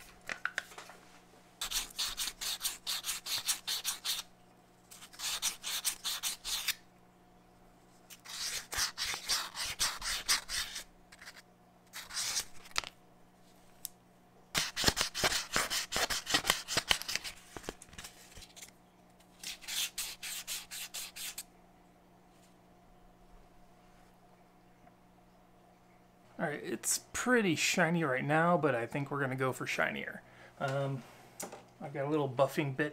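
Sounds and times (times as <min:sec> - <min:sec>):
sandpaper rubbing on steel: 0:01.6 - 0:04.3, 0:05.0 - 0:06.8, 0:08.2 - 0:11.4, 0:19.5 - 0:21.4.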